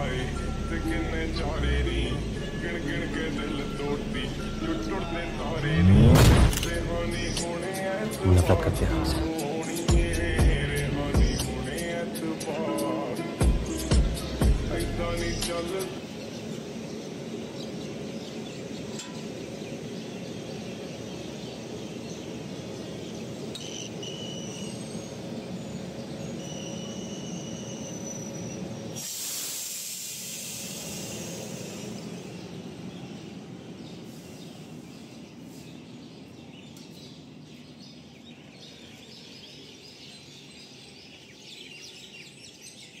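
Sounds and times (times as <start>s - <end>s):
low rumble of railway coaches: 0.0s - 5.7s, 6.7s - 8.2s, 9.3s - 43.0s
birds chirping: 8.2s - 9.4s, 15.2s - 29.0s, 31.4s - 43.0s
compressed air hissing: 28.9s - 32.3s.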